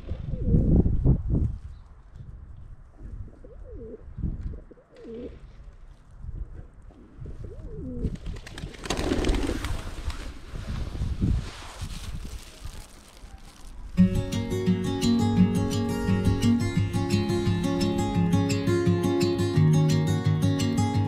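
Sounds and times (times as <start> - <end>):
flurry of wingbeats: 8.1 - 11.1.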